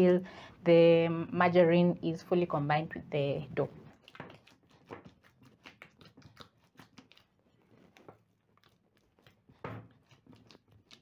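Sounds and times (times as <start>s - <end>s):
bread dough being kneaded: 3.9s - 11.0s.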